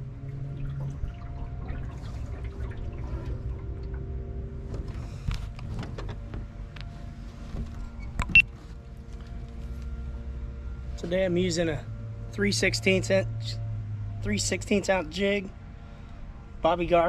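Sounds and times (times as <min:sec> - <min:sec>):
water lapping against boat hull: 0:00.0 - 0:06.3
low steady hum: 0:00.0 - 0:17.0.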